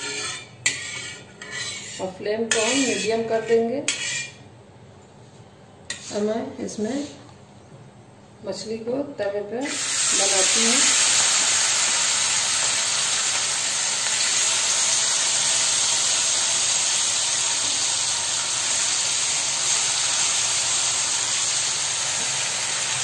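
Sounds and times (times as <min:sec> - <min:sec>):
fish sizzling in hot oil: 0:09.7 - 0:23.0.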